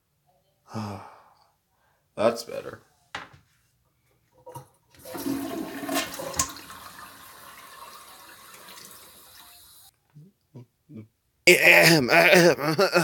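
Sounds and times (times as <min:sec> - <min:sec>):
toilet flushing: 0:05.0 - 0:09.9.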